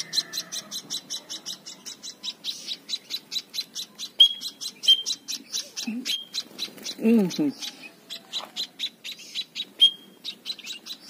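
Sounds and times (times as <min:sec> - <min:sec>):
fledglings chirping rapidly: 0:00.0 - 0:11.0
thin whistles: 0:09.8 - 0:10.1.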